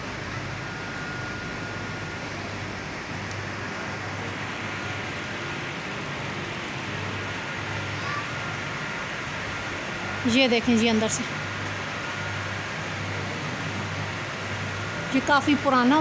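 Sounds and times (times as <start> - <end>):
faint high steady tone: 0.0 - 5.0.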